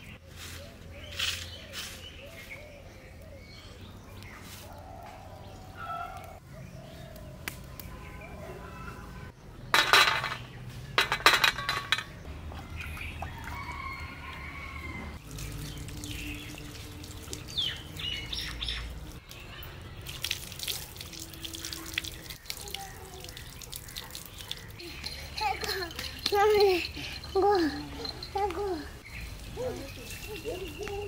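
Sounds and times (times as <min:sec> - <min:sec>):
water splashing over chicken: 0:12.3 - 0:24.8
bird calling: 0:29.0 - 0:31.0.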